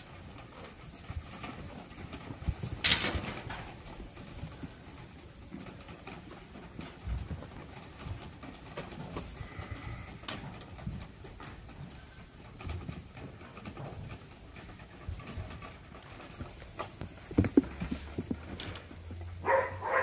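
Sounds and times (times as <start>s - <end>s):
lambs shuffling and bumping: 0.0s - 20.0s.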